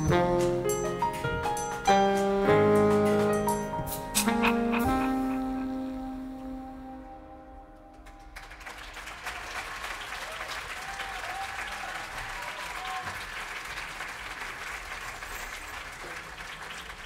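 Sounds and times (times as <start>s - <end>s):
audience applauding: 8.0s - 17.0s
audience cheering: 8.2s - 17.0s.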